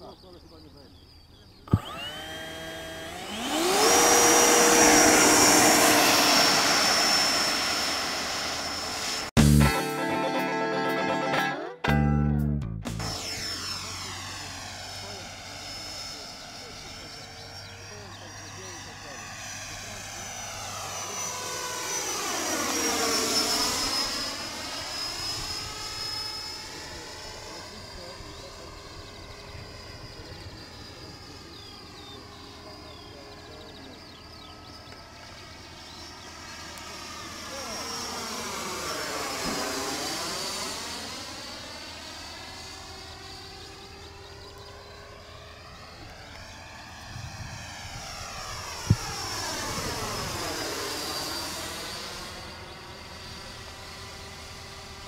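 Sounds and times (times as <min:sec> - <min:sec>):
electric ducted fans whining: 0:00.0 - 0:11.4
model jet fan whining: 0:00.3 - 0:09.3, 0:13.0 - 0:55.0
music: 0:09.4 - 0:13.1.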